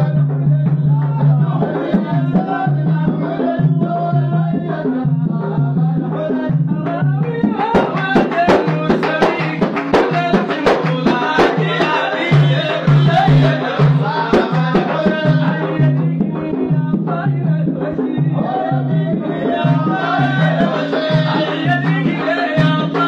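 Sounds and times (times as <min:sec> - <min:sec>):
frame drums: 0:00.0 - 0:23.0
men singing: 0:00.0 - 0:23.0
hand claps: 0:07.2 - 0:15.6, 0:19.8 - 0:23.0.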